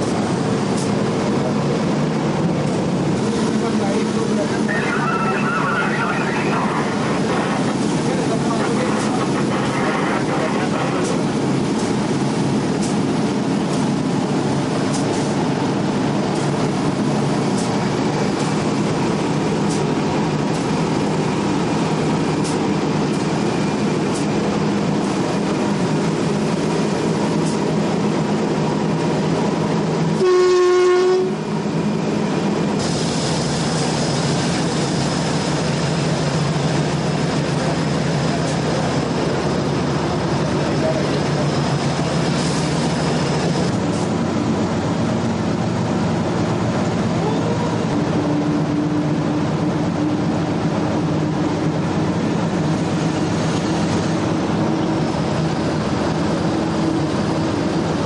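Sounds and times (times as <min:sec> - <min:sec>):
locomotive engine running: 0:00.0 - 0:58.0
train horn blast: 0:30.2 - 0:31.5.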